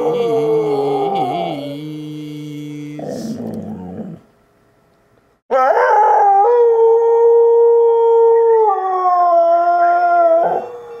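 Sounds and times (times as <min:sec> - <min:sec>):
dog howling: 0:00.0 - 0:01.8, 0:05.5 - 0:11.0.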